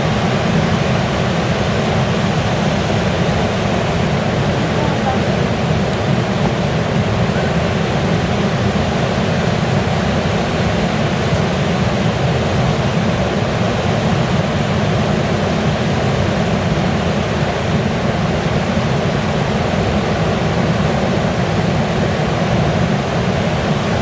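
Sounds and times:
river rapids roaring: 0:00.0 - 0:24.0.

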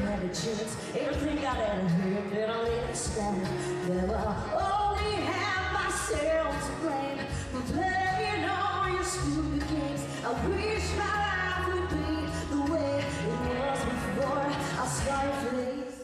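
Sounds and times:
woman singing country song: 0:00.0 - 0:16.0.

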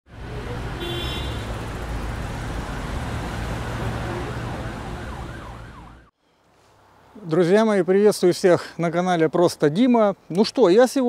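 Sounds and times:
low rumble of passing vehicles: 0:00.1 - 0:06.1.

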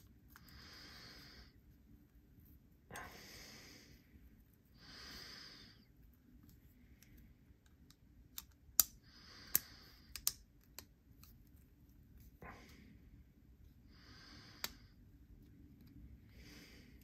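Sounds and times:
soft breaths out: 0:02.9 - 0:06.0, 0:12.2 - 0:15.2, 0:16.0 - 0:17.0.

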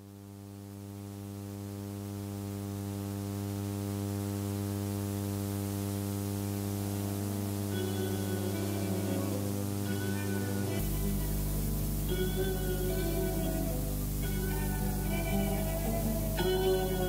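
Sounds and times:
amplifier mains hum: 0:00.0 - 0:17.0
faint music: 0:06.7 - 0:17.0.

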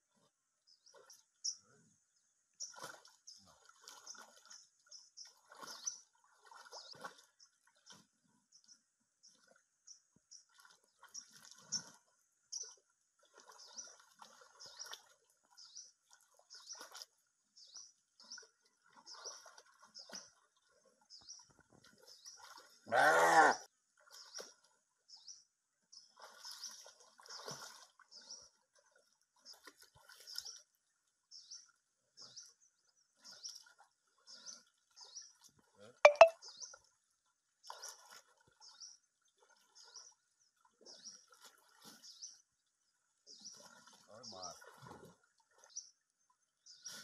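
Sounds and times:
water splashing: 0:02.6 - 0:08.1, 0:10.3 - 0:22.9, 0:26.0 - 0:30.7, 0:37.6 - 0:42.4, 0:43.3 - 0:46.0
deer distress call: 0:22.9 - 0:23.6
bird chirping: 0:36.1 - 0:36.7.

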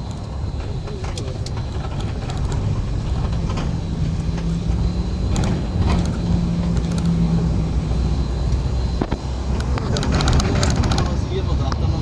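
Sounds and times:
car cabin engine and tyre rumble: 0:00.0 - 0:12.0.

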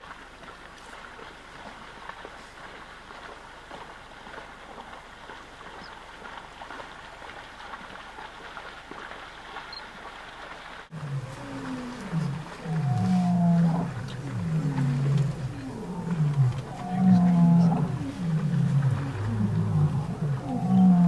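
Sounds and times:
faint background hiss: 0:08.9 - 0:21.0
lion roaring: 0:10.9 - 0:21.0.

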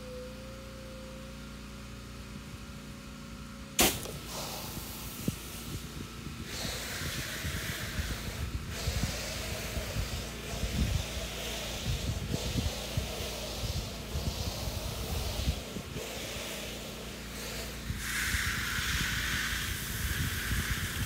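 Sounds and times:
low hum with faint whine: 0:00.0 - 0:21.0
sharp click: 0:03.8 - 0:04.2
pressure washer spraying: 0:03.8 - 0:21.0.

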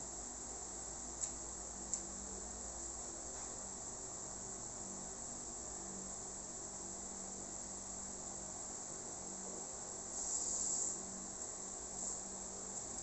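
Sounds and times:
steady high-pitched hiss: 0:00.0 - 0:13.0.

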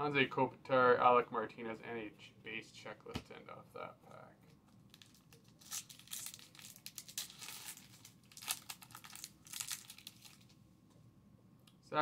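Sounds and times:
foil wrapper tearing and crinkling: 0:04.9 - 0:10.5.

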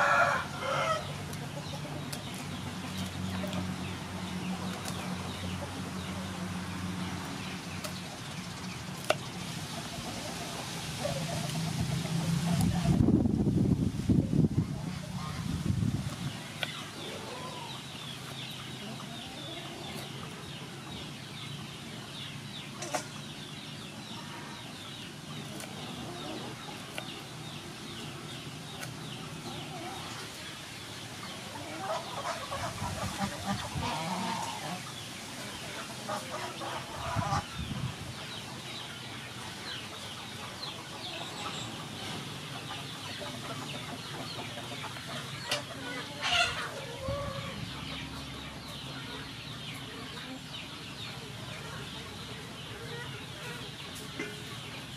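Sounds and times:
poultry clucking: 0:00.0 - 0:13.2, 0:14.5 - 0:54.9.

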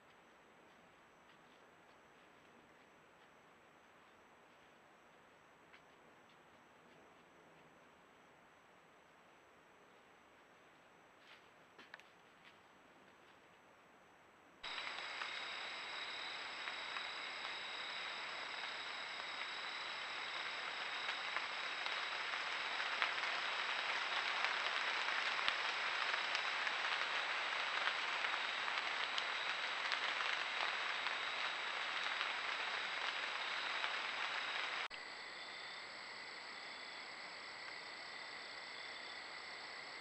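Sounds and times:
faint ticks: 0:14.6 - 0:34.9
crickets chirping: 0:14.6 - 0:40.0
steady hiss: 0:14.6 - 0:40.0.

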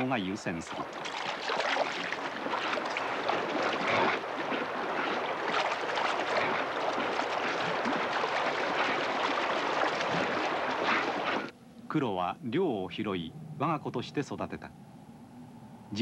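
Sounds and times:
dogs splashing through water: 0:00.0 - 0:11.5
stream rushing over rocks: 0:00.0 - 0:11.5.

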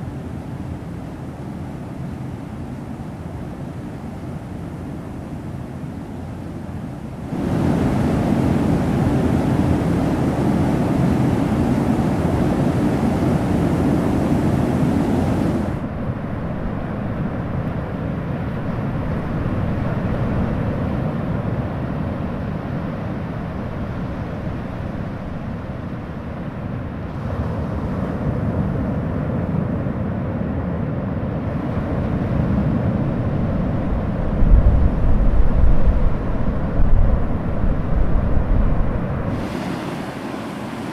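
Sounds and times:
sea surf: 0:00.0 - 0:40.9
wind rumble on microphone: 0:00.0 - 0:40.9
waterfall rushing: 0:39.3 - 0:40.9.

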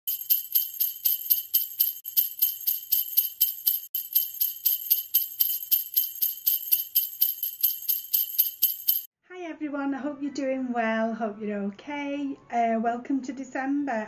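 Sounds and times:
jingle bells shaken: 0:00.0 - 0:09.1.

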